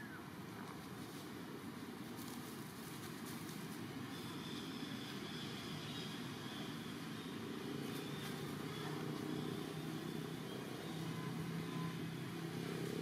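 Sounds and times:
low engine hum: 0.0s - 13.0s.

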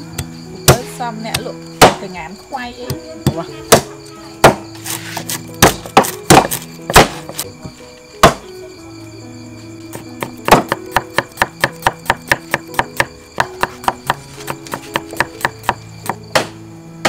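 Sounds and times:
background music: 0.0s - 17.0s
cleaver chopping on wooden block: 0.2s - 2.0s, 2.8s - 7.4s, 8.2s - 8.4s, 10.2s - 16.6s.

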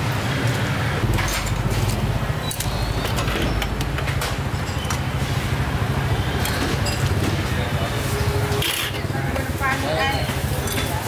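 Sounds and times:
metal utensils clinking on pot: 9.7s - 11.0s.

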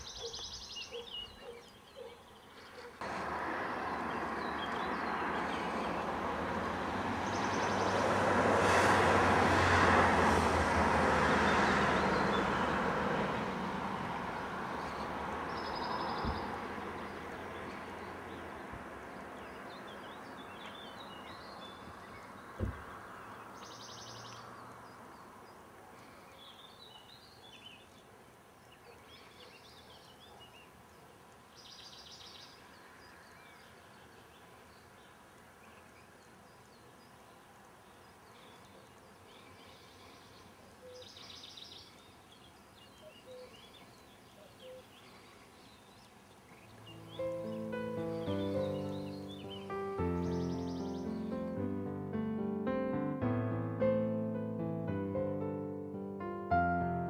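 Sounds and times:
birds chirping: 0.0s - 8.4s, 11.3s - 51.7s
vehicle engine hum and road noise: 2.8s - 26.0s, 46.1s - 51.6s.

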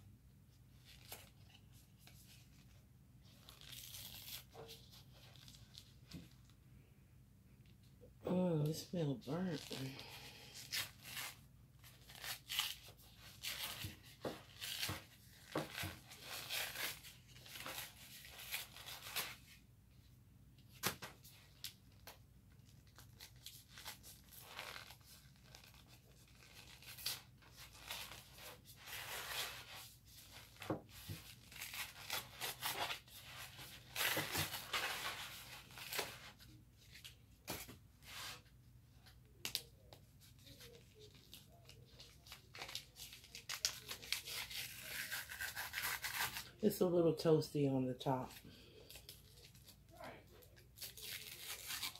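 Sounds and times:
paper box tearing and crinkling: 22.9s - 37.6s, 40.4s - 46.6s, 50.4s - 51.9s.

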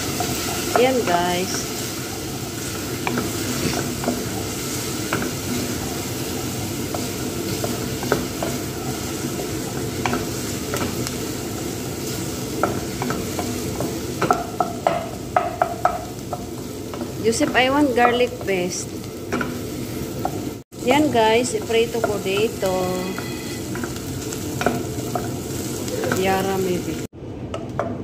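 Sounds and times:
onion sizzling in hot oil: 0.0s - 27.1s
wooden spoon tapping metal pot: 12.5s - 18.6s, 21.5s - 24.0s.

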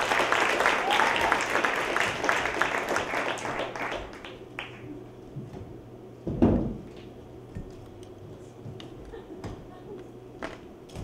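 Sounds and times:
audience applause: 0.0s - 4.9s.

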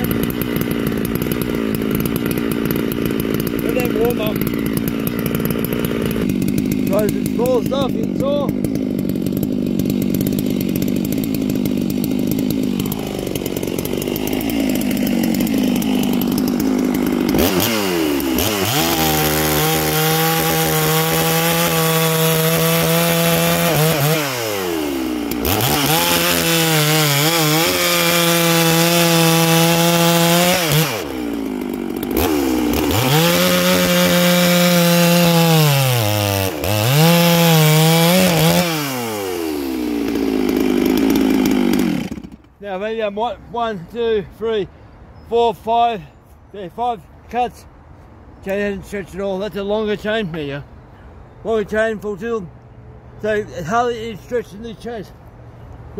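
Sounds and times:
chainsaw cutting log: 0.0s - 43.0s.

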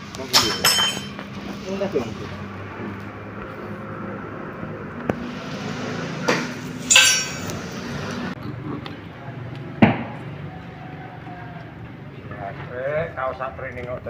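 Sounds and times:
metal tools clanking on concrete: 0.1s - 1.4s, 6.2s - 7.8s.

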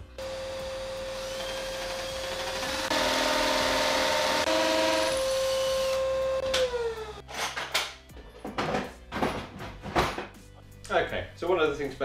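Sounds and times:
electric drill boring into wall: 0.2s - 7.2s.

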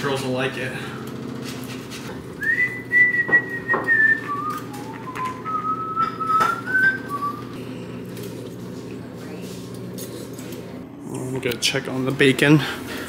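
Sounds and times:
person whistling a tune: 2.4s - 7.6s.

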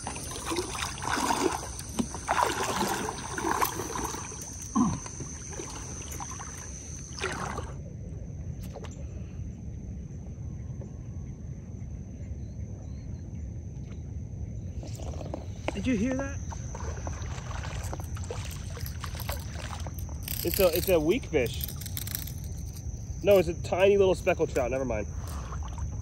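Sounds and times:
water splashes: 0.0s - 7.8s, 14.8s - 26.0s
wind and water rumble: 0.0s - 11.6s, 12.8s - 26.0s.

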